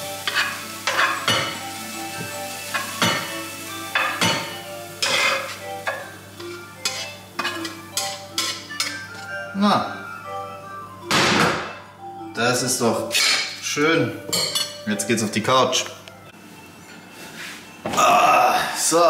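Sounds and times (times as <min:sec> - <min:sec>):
food sizzling in frying pan: 0:00.0 - 0:09.3
spatula scraping frying pan: 0:00.2 - 0:01.3, 0:05.0 - 0:05.7, 0:06.4 - 0:09.2.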